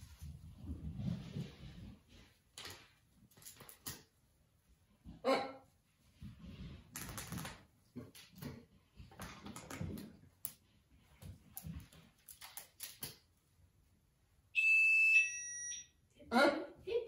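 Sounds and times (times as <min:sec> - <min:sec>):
rustling and scraping on rope: 0:00.0 - 0:13.7
shrill beep-like tone: 0:14.6 - 0:16.0.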